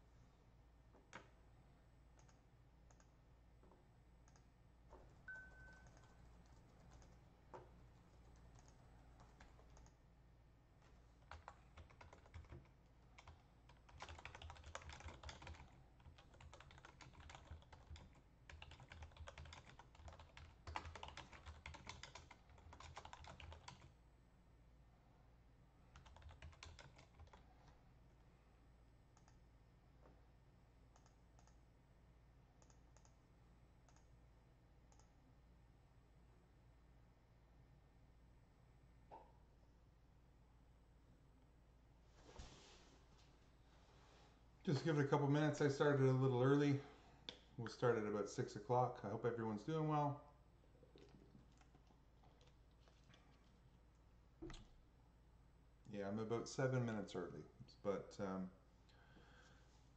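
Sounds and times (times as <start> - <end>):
typing on computer keyboard: 5.2 - 7.2, 8.0 - 10.0, 11.2 - 24.0, 25.9 - 27.5, 51.0 - 53.3.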